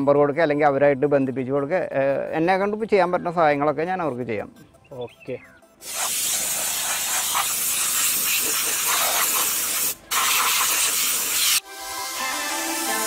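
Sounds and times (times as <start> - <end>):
music: 0.0 - 5.9, 11.6 - 13.0
steam hissing from spray gun: 5.8 - 11.6.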